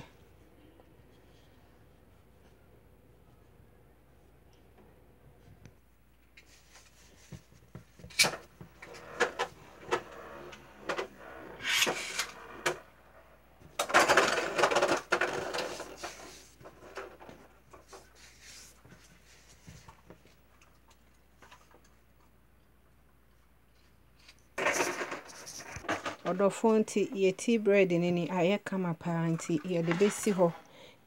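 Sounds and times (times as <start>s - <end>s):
dough rubbing and brushing: 6.4s - 8.1s, 15.7s - 16.7s, 17.8s - 20.2s.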